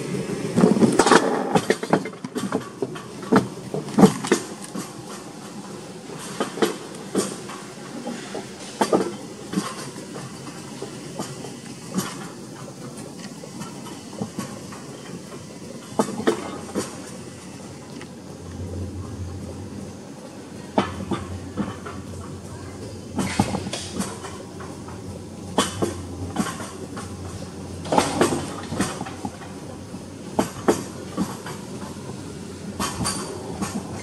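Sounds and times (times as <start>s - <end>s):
coaster sled rumbling on track: 0.0s - 34.0s
low hum: 18.3s - 20.0s.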